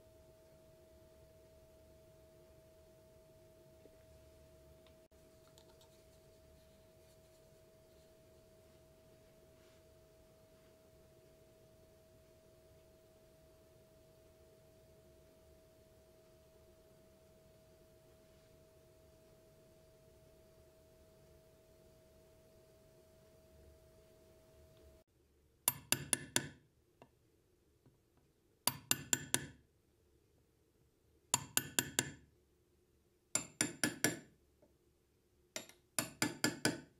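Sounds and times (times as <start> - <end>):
faint steady tone: 0.0 - 25.6
hammer tapping metal punch: 25.7 - 26.6, 33.4 - 34.2, 35.6 - 36.9.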